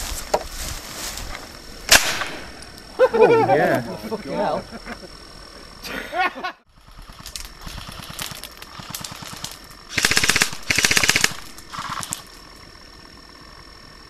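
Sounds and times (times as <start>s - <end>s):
airsoft rifles firing: 1.9s - 2.7s, 7.1s - 12.3s.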